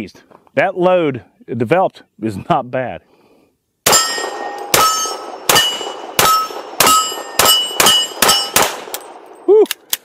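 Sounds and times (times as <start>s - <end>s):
pistol shots: 3.9s - 9.4s.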